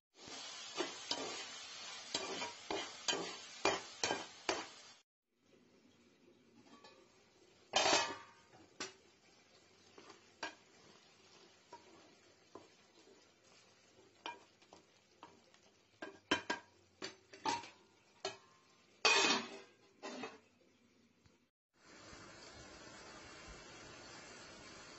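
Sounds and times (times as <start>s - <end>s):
faint sizzle: 0.1s - 24.9s
lid and ladle clattering on pot: 7.7s - 9.0s, 16.0s - 20.4s.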